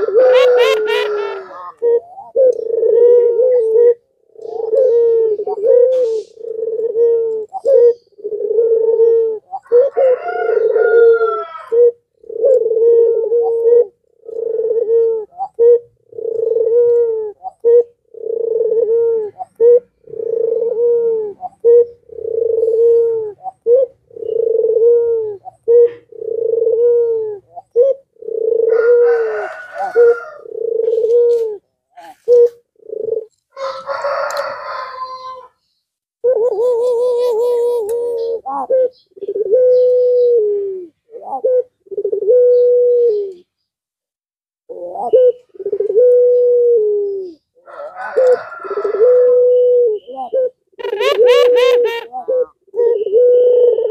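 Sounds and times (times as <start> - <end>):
harsh bird call: 0.0 - 1.9, 48.0 - 53.9
dove cooing: 0.0 - 35.6, 36.2 - 43.6, 44.7 - 53.9.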